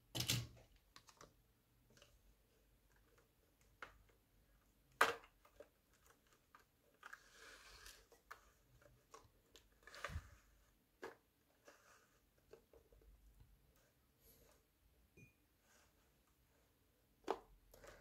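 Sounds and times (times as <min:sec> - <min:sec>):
rustling scrape: 0:09.8 - 0:10.7.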